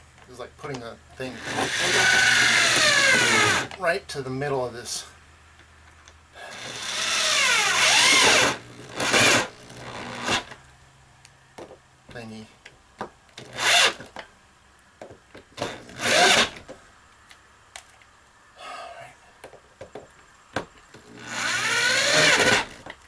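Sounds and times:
corded drill driving bolts: 1.2s - 3.8s, 6.4s - 10.6s, 13.4s - 14.1s, 15.6s - 16.6s, 21.0s - 23.0s.

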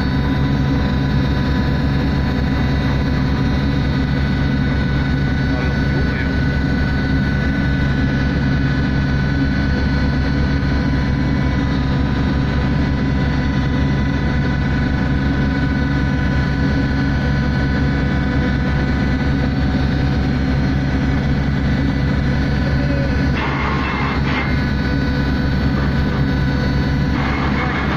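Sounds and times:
machinery hum: 0.0s - 27.9s
ship engines droning: 0.0s - 27.9s.

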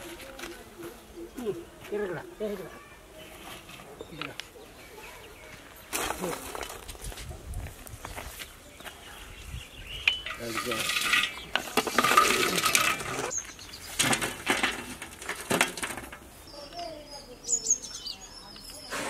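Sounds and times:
charcoal clattering on metal lid: 10.1s - 13.3s, 14.0s - 16.2s.

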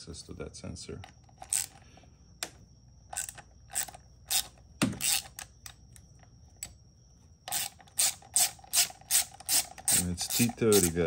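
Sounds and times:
hand ratchet clicking: 3.1s - 5.8s, 7.5s - 11.0s.

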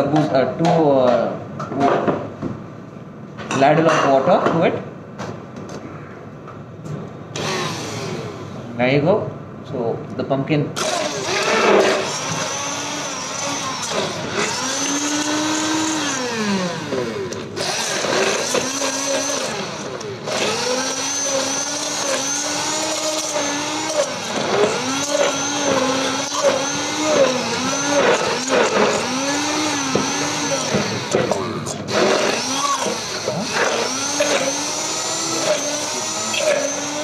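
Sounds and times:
hand blender motor whine: 7.4s - 8.6s, 10.8s - 37.0s.

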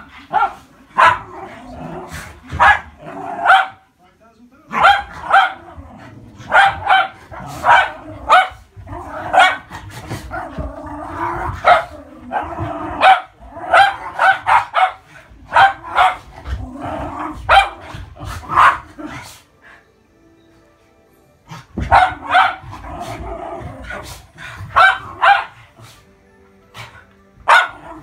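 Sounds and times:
dogs growling: 0.0s - 3.6s, 5.1s - 19.8s, 21.4s - 28.0s
dogs barking sharply: 4.7s - 5.6s, 6.5s - 8.6s, 13.0s - 16.2s, 24.7s - 25.6s, 27.5s - 27.9s.

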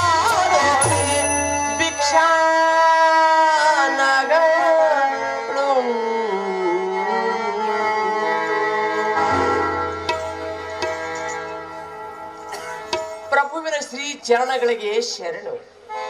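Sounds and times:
person singing devotional song: 0.0s - 8.8s
instrumental accompaniment: 0.0s - 13.7s.

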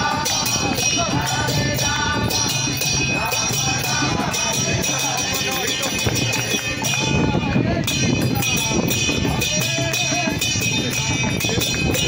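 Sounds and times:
group singing: 0.0s - 11.3s
hand cymbals struck: 0.0s - 12.0s.

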